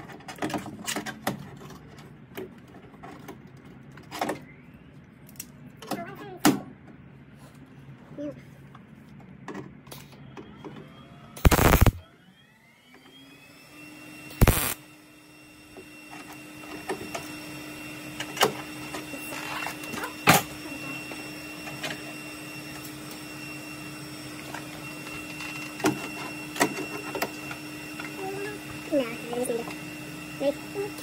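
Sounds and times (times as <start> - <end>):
sharp clicks: 11.4 - 12.0, 14.4 - 14.8
welder hum: 11.4 - 12.0, 14.3 - 14.9
welding arc bursts: 11.4 - 12.0, 14.4 - 14.8.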